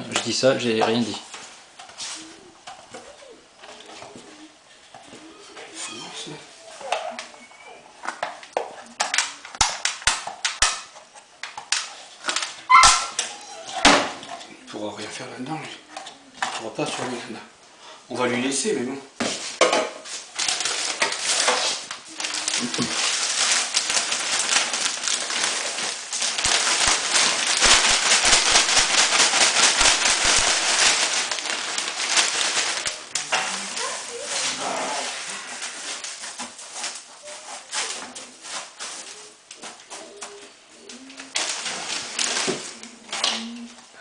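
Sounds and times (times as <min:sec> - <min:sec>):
dry hay rustling and crackling: 0:20.1 - 0:44.0.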